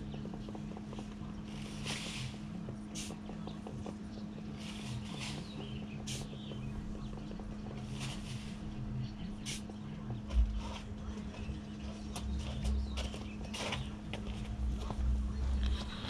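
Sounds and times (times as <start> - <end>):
steady low hum: 0.0 - 16.0
shovel scraping sand: 1.5 - 2.4, 4.6 - 5.5, 7.8 - 8.6.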